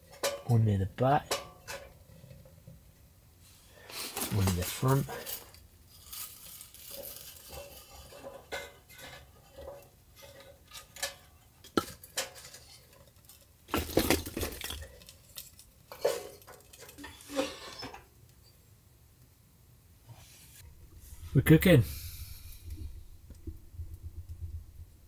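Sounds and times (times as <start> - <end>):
metal clinks from wood stove: 0.0 - 2.0.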